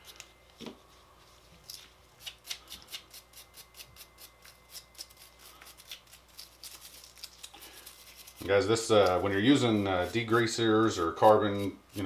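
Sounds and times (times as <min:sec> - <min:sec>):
wire brush scrubbing metal: 0:03.1 - 0:12.0.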